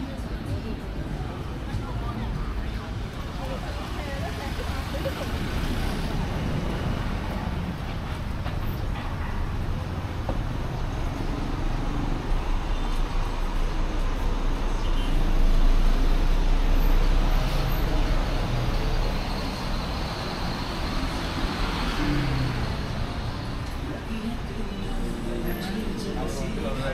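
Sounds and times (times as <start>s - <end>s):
road traffic rumble: 0.0s - 26.9s
heavy vehicle passing: 2.5s - 14.7s.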